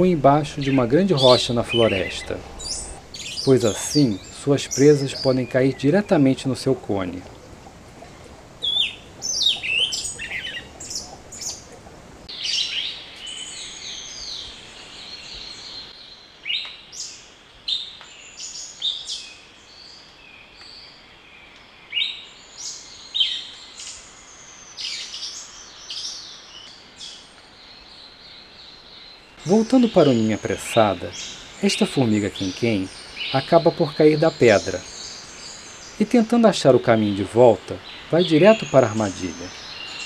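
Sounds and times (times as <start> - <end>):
birds chirping and whistling: 0.0 - 15.9, 29.0 - 40.0
faint steady hiss: 0.0 - 40.0.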